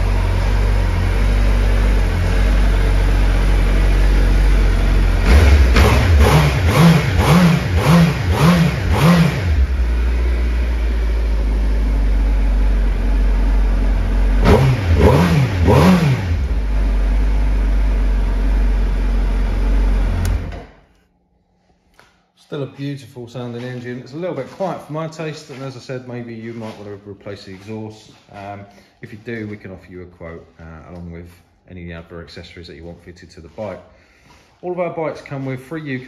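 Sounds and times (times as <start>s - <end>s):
motorcycle engine idling: 0.0s - 7.9s, 9.6s - 14.4s, 15.0s - 20.5s
motorcycle engine revving: 0.0s - 20.7s.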